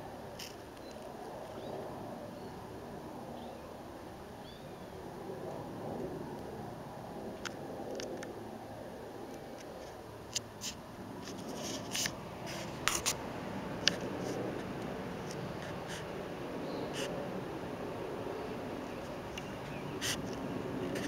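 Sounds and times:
steady background hiss: 0.0s - 21.0s
camera handling rubbing: 10.3s - 13.2s.

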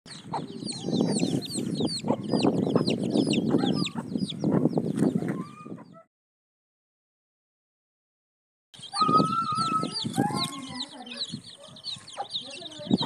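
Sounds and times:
chicks peeping: 0.1s - 6.0s, 8.8s - 13.0s.

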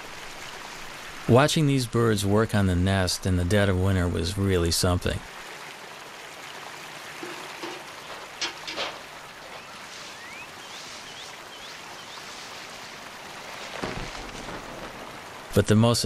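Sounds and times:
flowing water hiss: 0.0s - 16.0s
small bird chirps: 9.6s - 12.4s.

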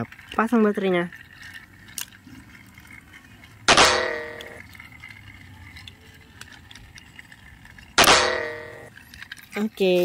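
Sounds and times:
plastic toy train clicks: 0.0s - 10.0s
loud metallic clang: 3.7s - 4.6s, 8.0s - 8.9s.

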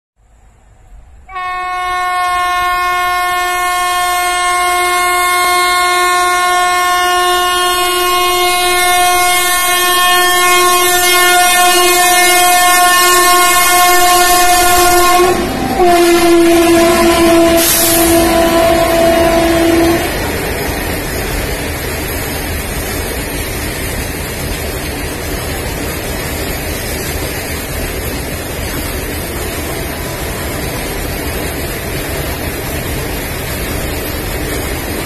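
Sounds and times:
train horn blast: 1.2s - 20.3s, 29.2s - 31.2s.

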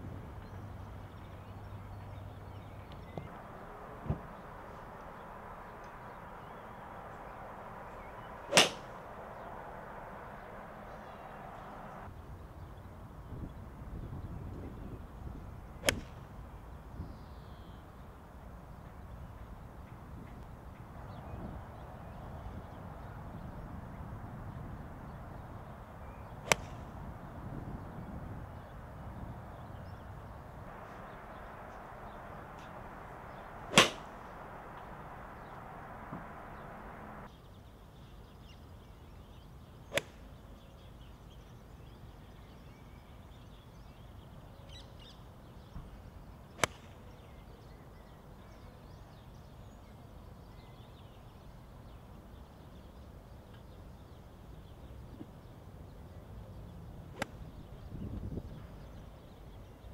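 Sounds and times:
faint birdsong: 0.0s - 59.9s
outdoor background hiss: 0.0s - 59.9s
golf club striking ball: 8.0s - 8.9s, 15.8s - 16.1s, 26.5s - 26.8s, 31.2s - 35.0s.

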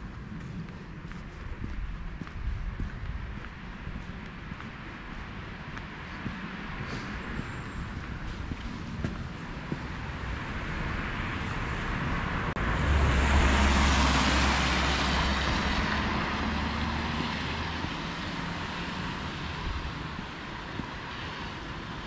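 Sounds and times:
motor vehicle passing: 6.2s - 21.6s.

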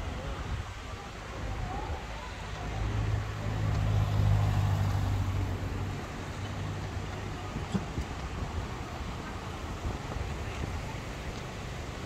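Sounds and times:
street noise: 0.0s - 12.0s
vehicle engine passing by: 2.5s - 7.2s.

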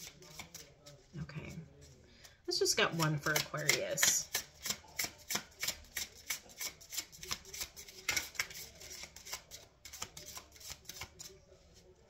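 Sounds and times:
cards being shuffled: 0.0s - 0.8s, 2.9s - 11.3s.

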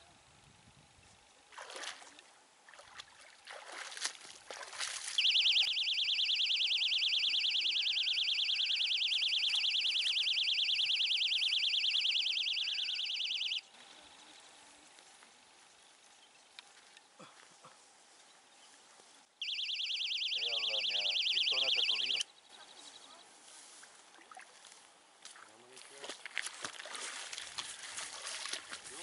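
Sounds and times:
bite alarm warbling tone: 5.2s - 13.6s, 19.4s - 22.2s.

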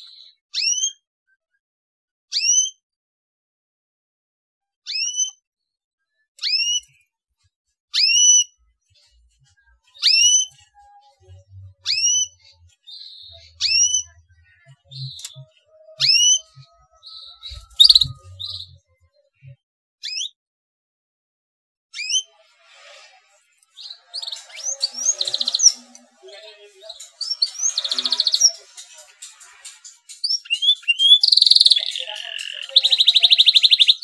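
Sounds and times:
canary rising whistled calls: 17.4s - 18.2s.

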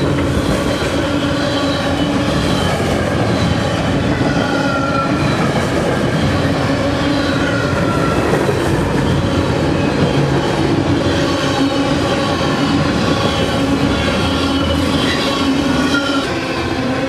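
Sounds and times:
freight train wheels rumbling: 0.0s - 17.0s
metallic wheel squeal: 13.2s - 16.6s.

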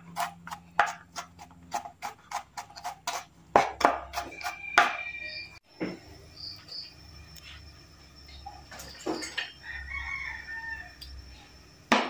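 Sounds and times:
knife chopping on cutting board: 0.1s - 5.0s.

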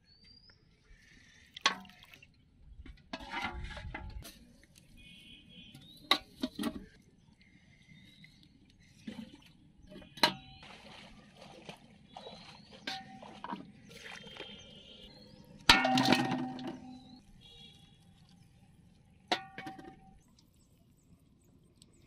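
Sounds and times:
plastic bottles knocking on metal pot: 15.7s - 17.1s, 19.3s - 20.2s.

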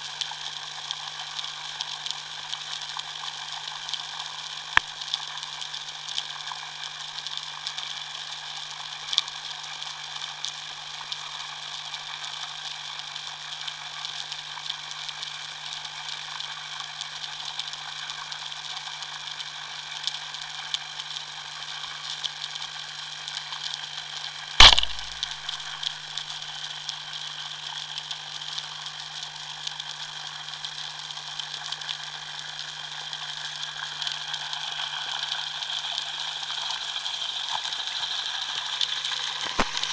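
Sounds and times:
sharp loud crack: 24.6s - 25.8s
low hum: 24.6s - 25.9s.

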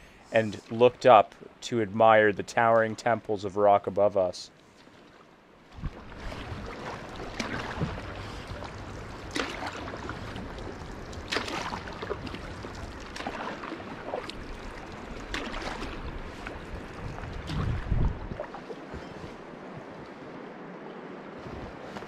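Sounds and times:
water splashing against canoe hull: 4.7s - 19.5s.

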